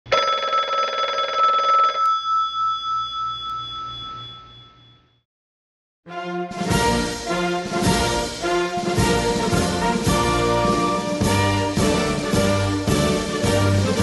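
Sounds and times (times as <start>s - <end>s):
bell ringing in rapid trill: 0.1s - 5.2s
orchestral music with brass: 6.1s - 14.0s.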